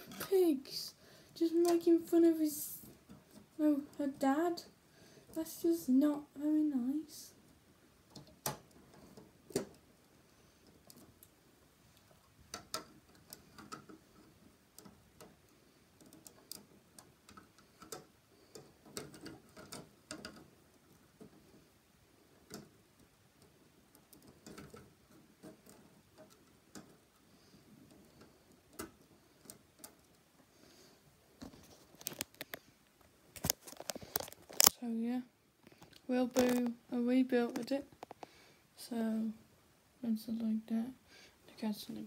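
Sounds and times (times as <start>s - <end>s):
plastic bricks clicking together: 35.8s - 36.8s.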